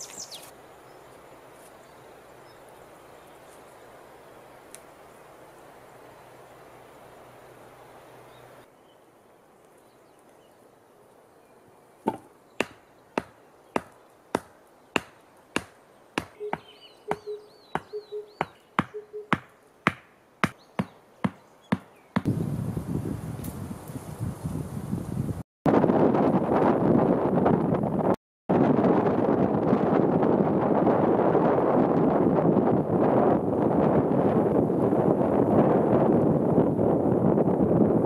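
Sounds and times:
hand tool chopping wood: 0:12.0 - 0:22.3
wind noise on microphone: 0:22.2 - 0:38.0.

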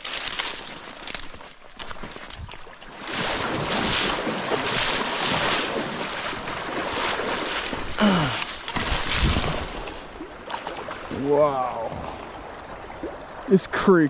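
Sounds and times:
dry brush rustling and crackling: 0:00.0 - 0:04.2, 0:08.5 - 0:10.1.

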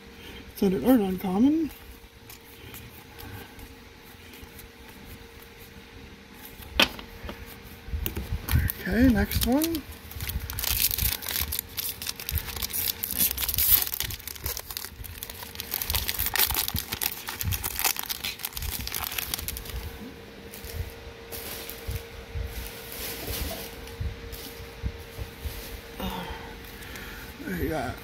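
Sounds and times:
foil wrapper tearing and crinkling: 0:08.5 - 0:19.9.

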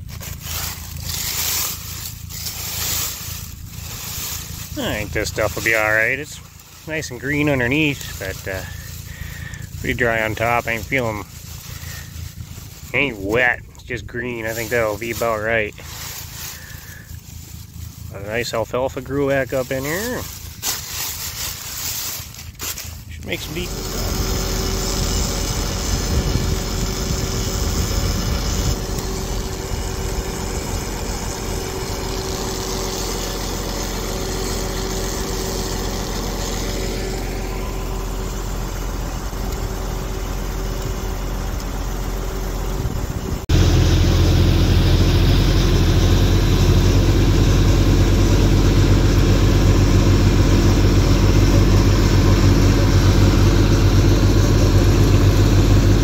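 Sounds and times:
deep engine running: 0:00.0 - 0:56.0
vehicle engines running: 0:00.0 - 0:56.0.

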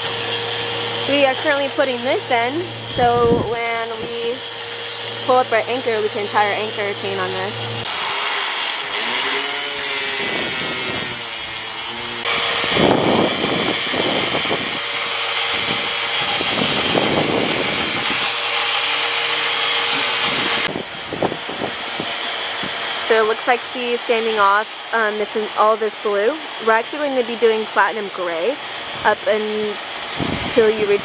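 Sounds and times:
hand tool rasping fiberglass: 0:00.0 - 0:20.7.

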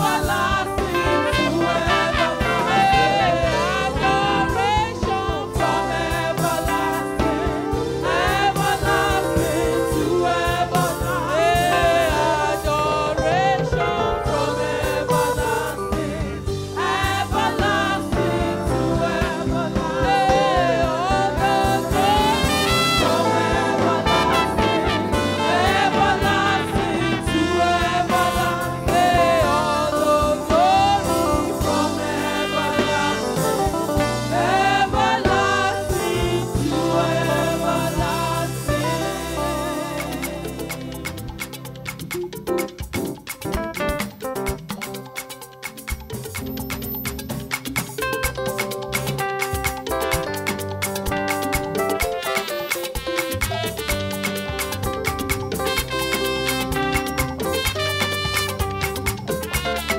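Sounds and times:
woman singing into a microphone: 0:00.0 - 0:07.5, 0:08.2 - 0:22.7
backing singers: 0:00.0 - 0:41.8
instrumental accompaniment: 0:00.0 - 0:59.9.

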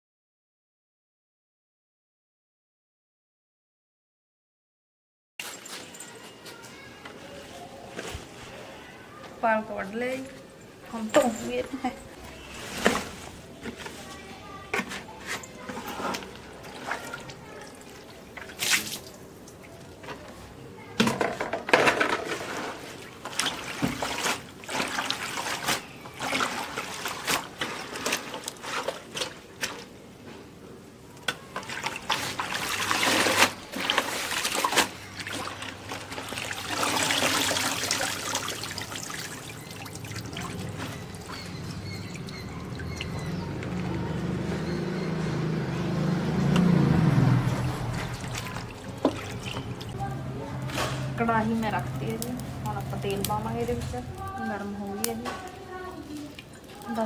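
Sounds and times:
water trickling off leaves: 0:11.0 - 0:20.4, 0:22.2 - 0:30.0, 0:31.1 - 0:45.2, 0:46.0 - 0:57.0
hands splashing leaves in water: 0:16.2 - 0:19.8, 0:22.3 - 0:29.9, 0:31.5 - 0:43.9, 0:47.6 - 0:50.0.

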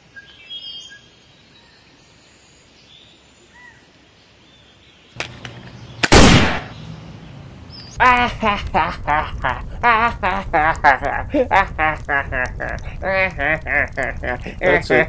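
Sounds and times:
faint bird chirps: 0:00.1 - 0:06.0.

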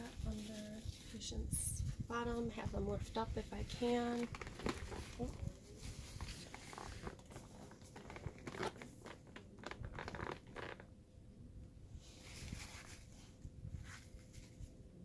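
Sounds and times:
underpad rustling and crinkling: 0:02.1 - 0:10.9.

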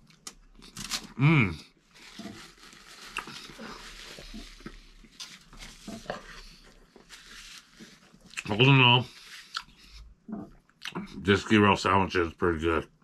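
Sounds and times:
paper napkin rustling: 0:01.9 - 0:09.5.

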